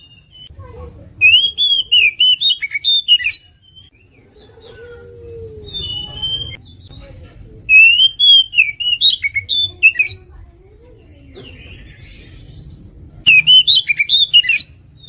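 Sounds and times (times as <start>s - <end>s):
bird singing whistled phrases: 0.0s - 0.5s, 1.2s - 4.2s, 5.6s - 6.9s, 7.7s - 10.2s, 13.3s - 15.0s.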